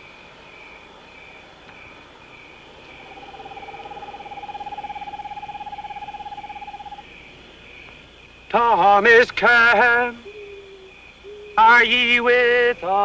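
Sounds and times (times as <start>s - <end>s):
crickets chirping: 0.0s - 13.0s
steady wavering tone: 2.7s - 7.1s.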